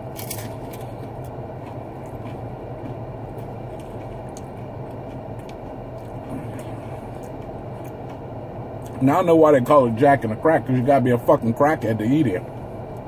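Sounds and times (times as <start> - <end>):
man chewing food: 0.0 - 9.0.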